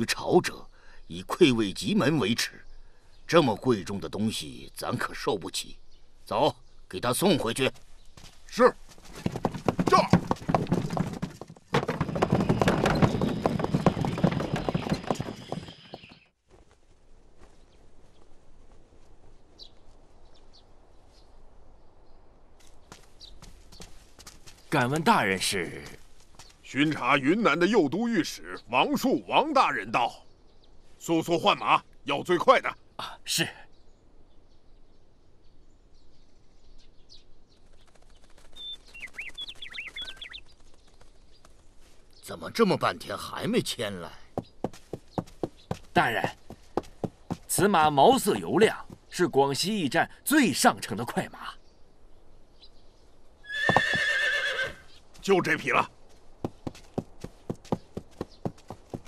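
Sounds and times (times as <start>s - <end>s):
small birds chirping: 0.0s - 16.4s, 17.4s - 59.0s
horse hooves clip-clopping: 7.7s - 18.8s, 22.6s - 26.7s, 37.5s - 42.1s, 44.3s - 49.2s, 53.5s - 59.0s
fast faint clicking: 37.5s - 41.7s.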